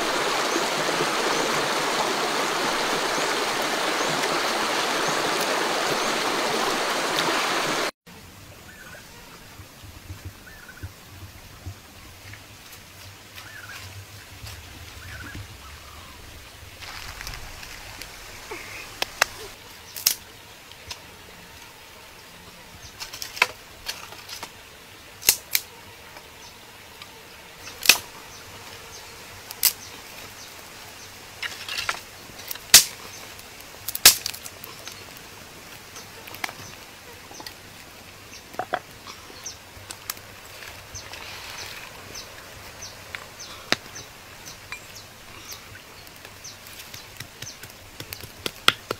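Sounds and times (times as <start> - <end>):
shallow stream hissing: 0.0 - 9.8, 15.6 - 48.6
dry sticks snapping: 25.2 - 25.7, 27.7 - 28.0, 31.4 - 33.0, 33.8 - 35.0, 46.0 - 48.9.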